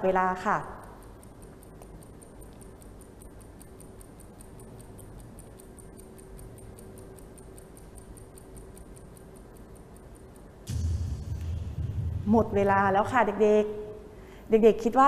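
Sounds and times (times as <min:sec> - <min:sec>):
rapid clock ticking: 0:00.0 - 0:13.5.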